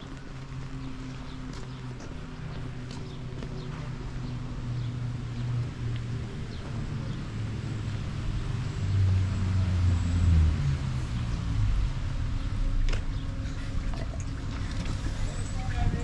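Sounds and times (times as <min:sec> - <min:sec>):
vehicle engine passing: 0:00.0 - 0:16.0.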